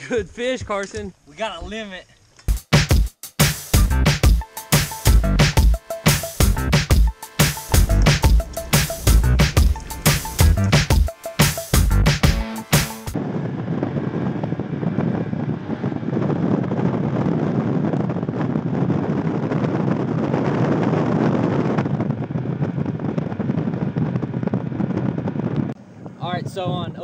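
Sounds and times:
outboard motor droning: 4.4s - 16.2s
wind rushing over microphone: 6.6s - 11.2s, 13.2s - 27.0s.

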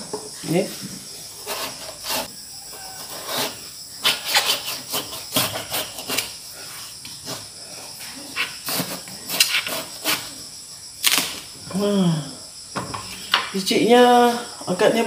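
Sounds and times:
knife cutting through gourd: 1.4s - 6.4s, 8.3s - 10.4s.

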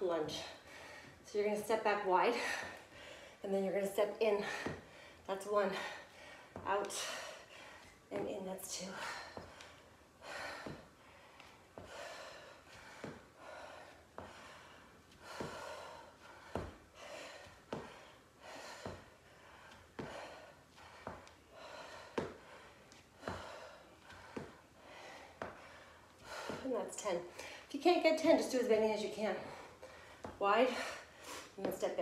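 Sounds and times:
woman breathing hard: 0.5s - 1.2s, 2.3s - 3.4s, 4.4s - 8.1s, 8.9s - 26.7s, 29.4s - 31.6s
feet thudding on exercise mat: 4.4s - 5.0s, 5.8s - 7.1s, 9.0s - 27.1s, 29.3s - 30.9s.

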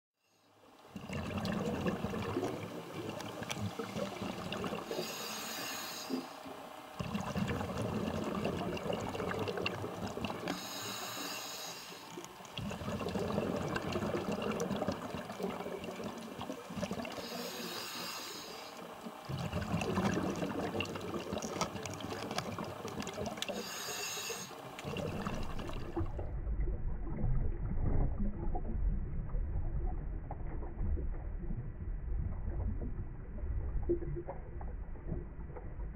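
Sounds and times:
exhaled air bubbling: 0.9s - 11.2s, 12.0s - 35.9s
regulator inhalation hiss: 4.9s - 6.4s, 10.5s - 12.1s, 17.2s - 18.8s, 23.5s - 24.7s.

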